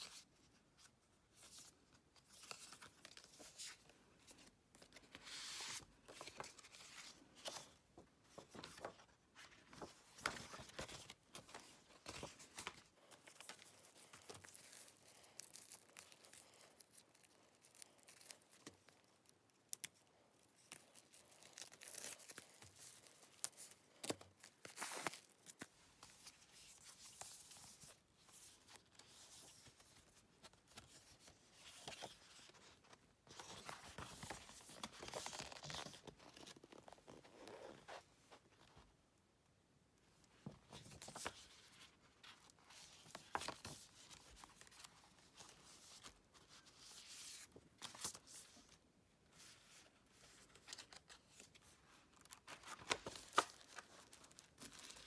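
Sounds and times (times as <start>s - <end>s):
pages flipping: 0.8s - 19.0s, 20.6s - 38.0s, 40.4s - 48.6s, 49.4s - 55.0s
paper and plastic crinkling: 50.2s - 55.0s.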